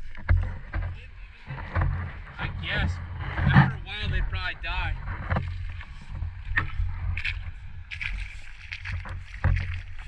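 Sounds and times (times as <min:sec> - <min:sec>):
water gurgling against camera housing: 0:00.0 - 0:10.0.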